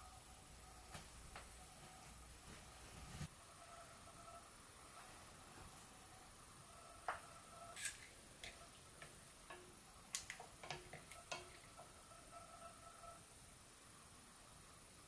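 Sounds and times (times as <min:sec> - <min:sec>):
faint steady hum: 0:00.0 - 0:15.0
faint clicks and knocks on a pot: 0:08.4 - 0:12.0.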